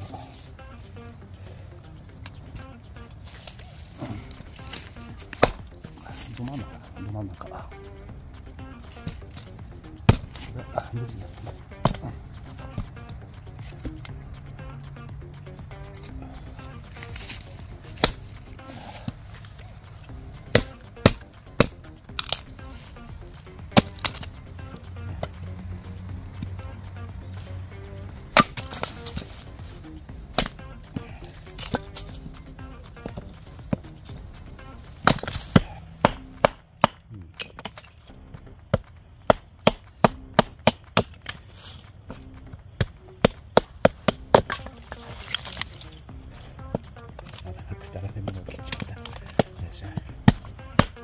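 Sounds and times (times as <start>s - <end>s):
background music: 0.0s - 51.0s
knife chopping into wood: 4.6s - 6.4s, 10.1s - 10.5s, 20.4s - 22.6s, 23.8s - 25.4s, 28.3s - 29.4s, 30.3s - 33.8s, 35.0s - 37.9s, 42.8s - 45.8s, 50.2s - 51.0s.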